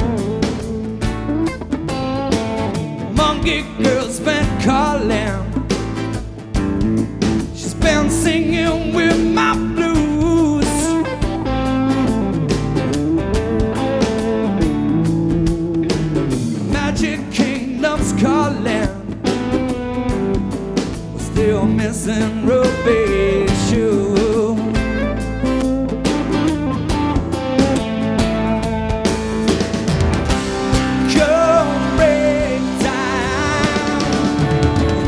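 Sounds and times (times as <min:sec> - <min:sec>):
acoustic guitar: 0:00.0 - 0:35.0
drum kit: 0:00.0 - 0:35.0
electric guitar: 0:00.0 - 0:35.0
person singing: 0:03.0 - 0:05.7, 0:07.5 - 0:11.4, 0:16.6 - 0:19.4, 0:21.2 - 0:25.1, 0:30.7 - 0:35.0.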